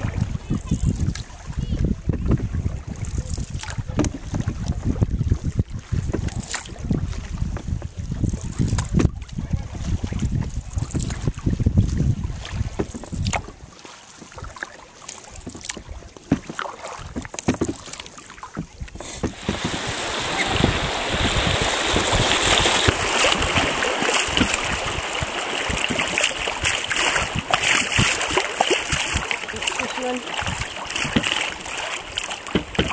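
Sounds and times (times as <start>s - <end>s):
paddle splashing water: 0.0s - 32.9s
water rushing through rapids: 19.2s - 32.9s.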